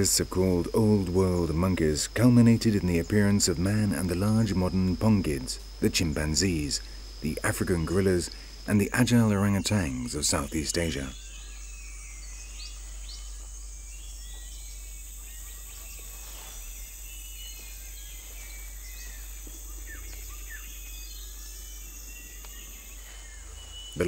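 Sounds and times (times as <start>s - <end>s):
high-pitched insect drone: 0.0s - 24.0s
bird chirps and calls: 7.9s - 24.0s.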